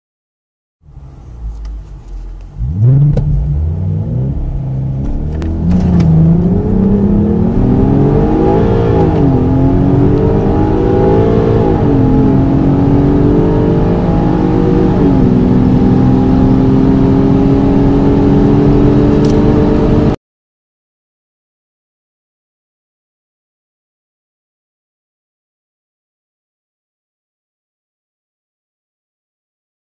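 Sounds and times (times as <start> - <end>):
car engine accelerating hard: 0.9 - 20.2.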